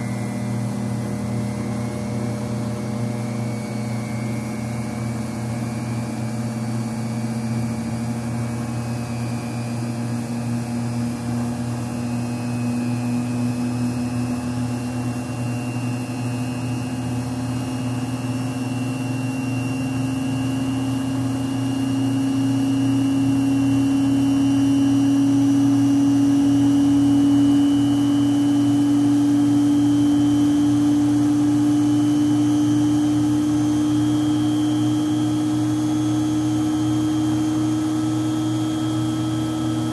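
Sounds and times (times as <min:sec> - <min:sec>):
centrifuge whine rising: 0:00.0 - 0:39.9.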